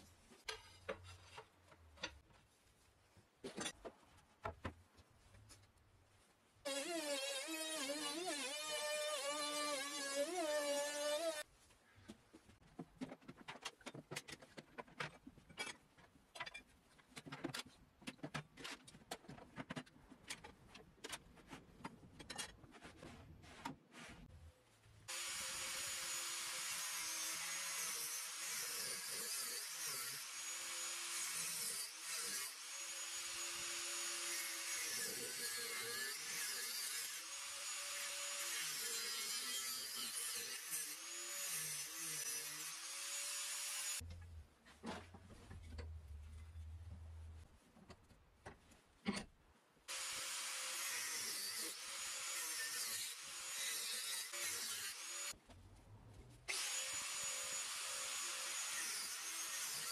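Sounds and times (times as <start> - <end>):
workpieces knocking and clicking: 0.3 - 2.4, 12.1 - 23.8, 47.8 - 49.4
angle grinder cutting metal: 6.7 - 11.4, 25.1 - 44.0, 49.9 - 55.3, 56.5 - 59.9.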